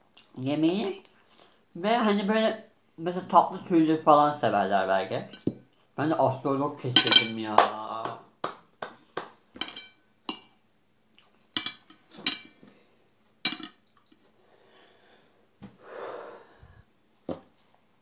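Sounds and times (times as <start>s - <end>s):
long breath out: 14.4s - 16.9s.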